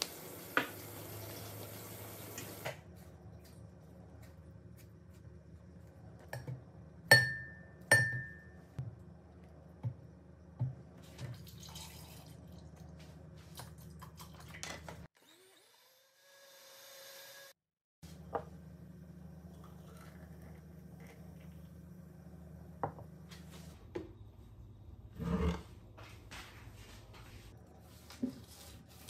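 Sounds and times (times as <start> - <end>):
blender motor whine: 15.2 - 17.6.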